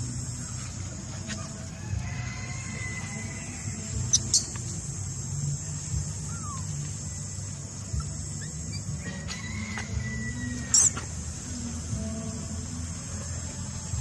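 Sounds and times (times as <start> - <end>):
high-pitched animal squeaks: 7.9 - 9.4, 10.2 - 11.1.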